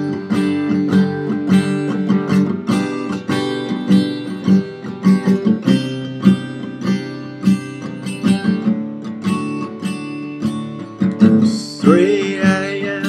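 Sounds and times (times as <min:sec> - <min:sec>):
acoustic guitar strumming: 0:00.0 - 0:13.0
man singing: 0:11.2 - 0:13.0.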